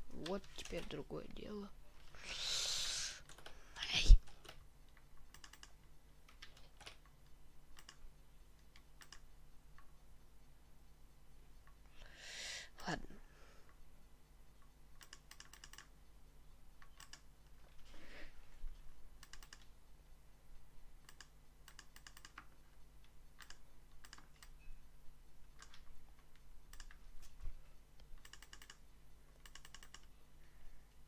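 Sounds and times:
faint electrical hum: 0.0s - 31.0s
mouse and keyboard clicking: 4.2s - 8.0s, 8.6s - 9.9s, 15.0s - 15.9s, 16.8s - 17.3s, 19.2s - 19.8s, 21.0s - 24.6s, 25.5s - 27.4s, 28.0s - 28.8s, 29.4s - 30.1s.

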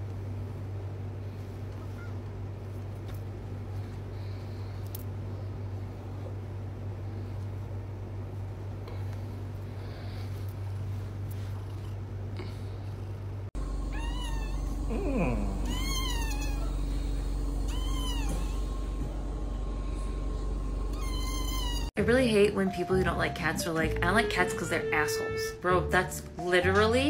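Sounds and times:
steady low hum: 0.0s - 24.8s
short falling whine: 13.6s - 21.9s
kitten mewing: 13.9s - 16.8s, 17.7s - 18.6s.

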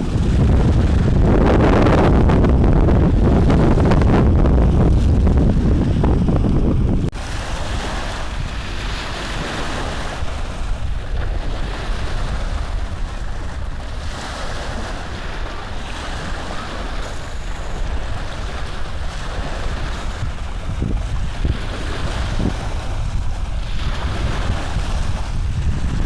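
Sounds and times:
low rumble: 0.0s - 7.3s.

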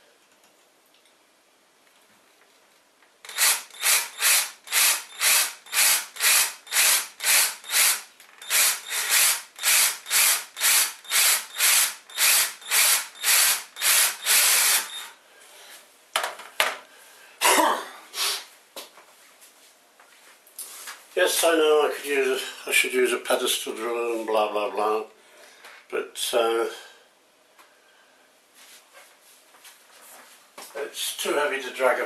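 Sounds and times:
cordless drill pulsing: 3.2s - 15.2s.

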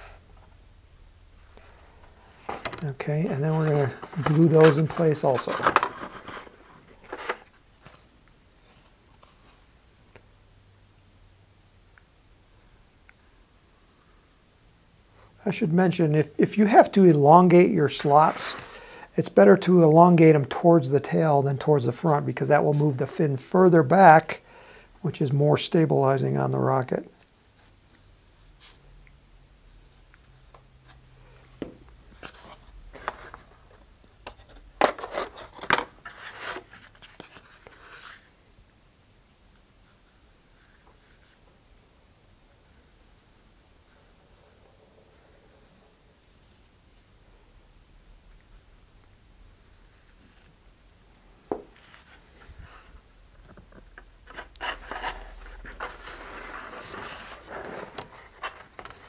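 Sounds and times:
scrapes and rustles of handling: 1.4s - 10.2s, 15.2s - 21.2s, 29.7s - 38.4s, 39.8s - 41.6s, 51.5s - 59.0s
wood scraping against paper tube: 54.3s - 59.0s.

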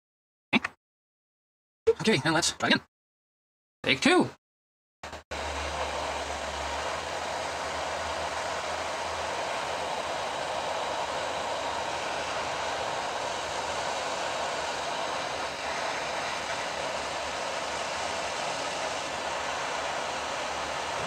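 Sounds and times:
hot air blower hissing: 5.1s - 21.0s.

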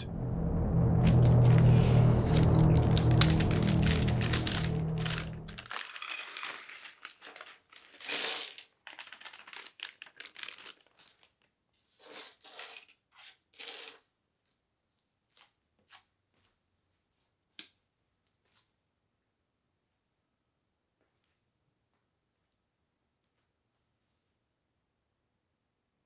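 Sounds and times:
plastic bags crinkling and tearing: 2.3s - 11.5s.

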